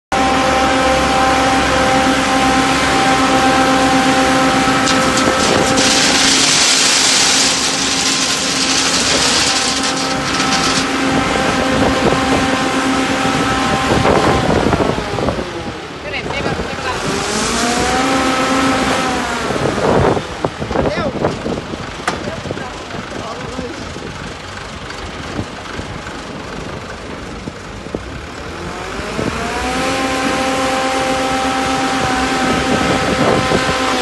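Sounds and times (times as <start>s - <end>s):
diesel engines running: 0.1s - 34.0s
gravel pouring into hopper: 4.6s - 11.8s.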